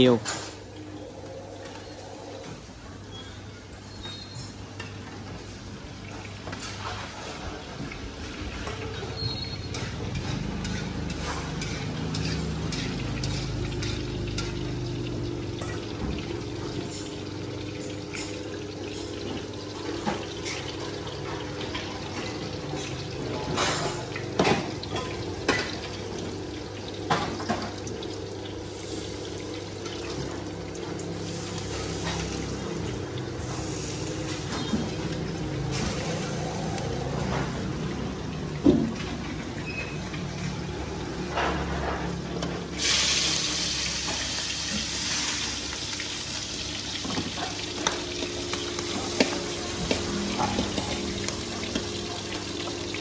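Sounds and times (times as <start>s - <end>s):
food sizzling in deep oil: 1.8s - 53.0s
metal utensils clinking on woks: 9.6s - 14.8s.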